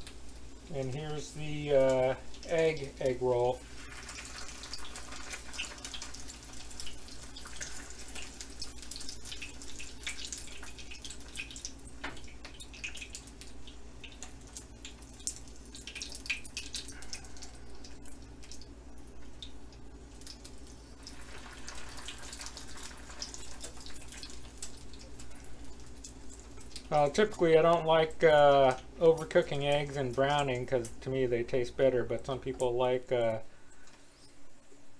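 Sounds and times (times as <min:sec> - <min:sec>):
food sizzling in oil: 0:00.0 - 0:16.9, 0:20.0 - 0:26.9.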